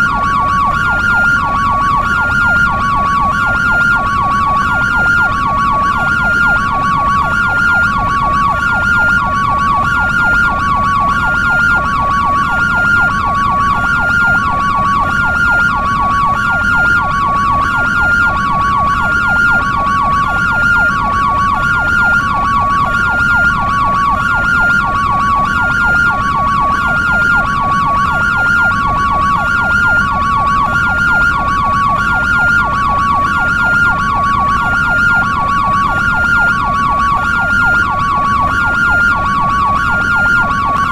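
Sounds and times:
two-tone ambulance siren: 0.0 - 40.9.

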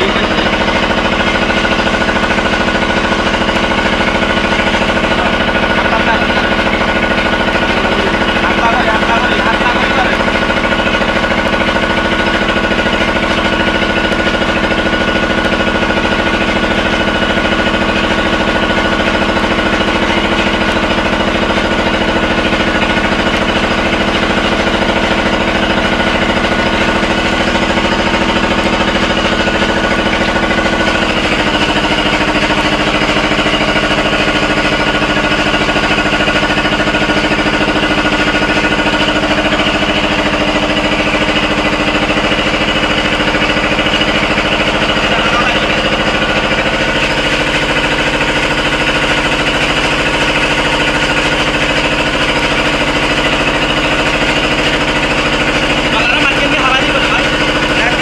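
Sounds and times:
engine running with fast pulsing: 0.0 - 58.0.

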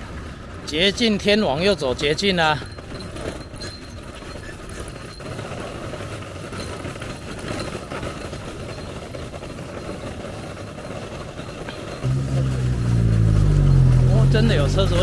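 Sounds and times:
road traffic rumble: 9.9 - 15.0.

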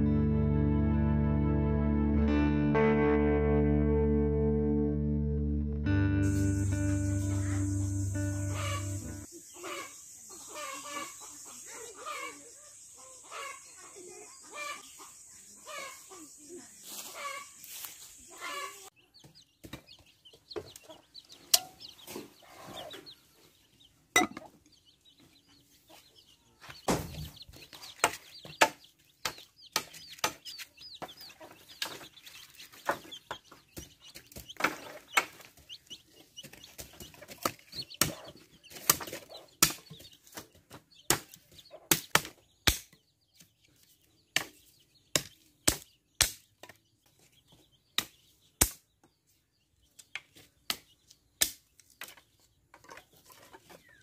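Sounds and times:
chickens clucking: 6.3 - 45.9, 51.8 - 54.0
blade chopping dry sticks: 27.9 - 30.6, 36.8 - 40.4, 41.1 - 43.0, 45.2 - 46.8.

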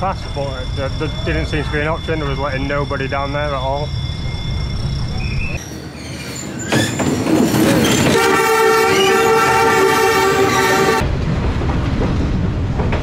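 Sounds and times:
train rumbling: 0.0 - 13.0
train horn blast: 8.1 - 11.0.

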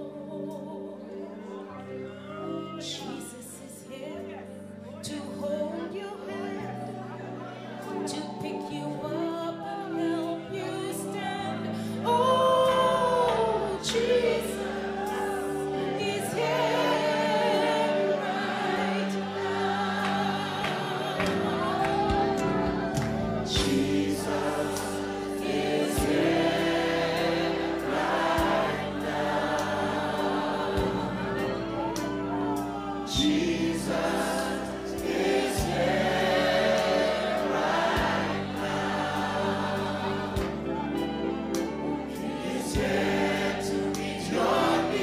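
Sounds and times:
woman singing into a microphone: 0.0 - 22.6
congregation singing: 0.0 - 45.0
sustained accompaniment: 10.6 - 45.0.

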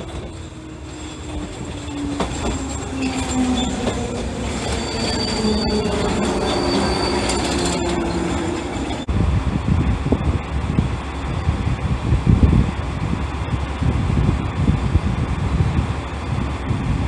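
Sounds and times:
wheels squealing: 0.0 - 9.1
train wheels rumbling on rails: 0.0 - 17.0.

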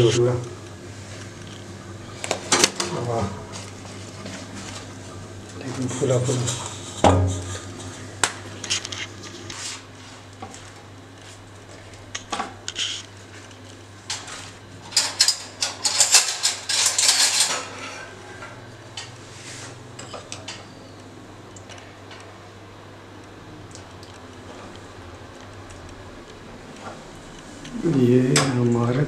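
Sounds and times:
dishes and spoon clinking: 14.8 - 19.2.

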